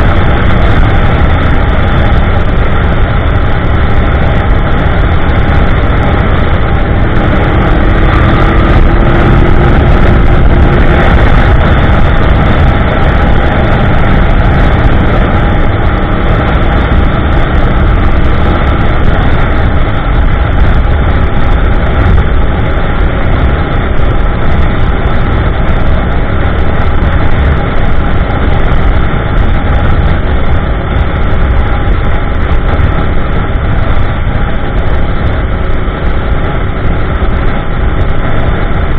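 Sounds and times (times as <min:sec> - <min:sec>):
motorcycle engine cruising: 0:00.0 - 0:38.9.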